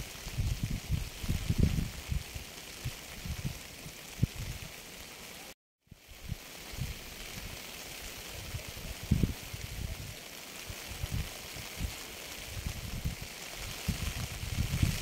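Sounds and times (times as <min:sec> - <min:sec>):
steady rain hiss: 0:00.0 - 0:15.0.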